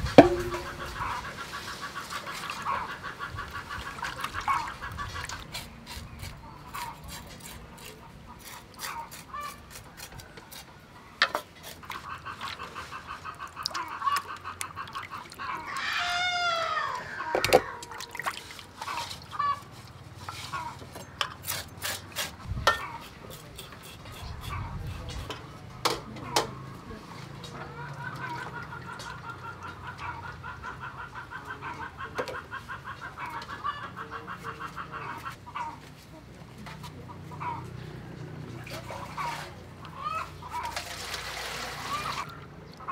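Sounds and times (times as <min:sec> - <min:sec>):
poultry calling: 0:00.2 - 0:07.0, 0:11.8 - 0:17.9, 0:27.5 - 0:35.9, 0:37.0 - 0:40.9
hands swishing fish in water: 0:17.6 - 0:20.6.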